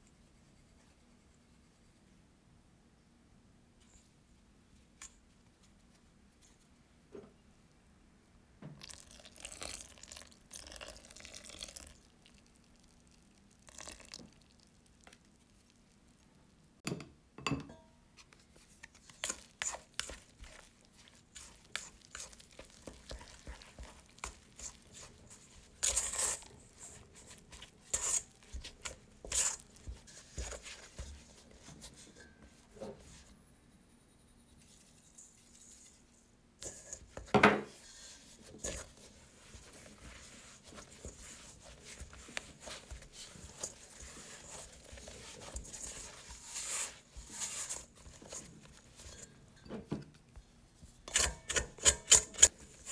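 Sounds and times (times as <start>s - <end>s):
liquid pouring into a bowl: 8.8s - 15.0s
spatula scraping dough in bowl: 18.9s - 33.3s, 36.6s - 49.6s, 51.1s - 52.9s.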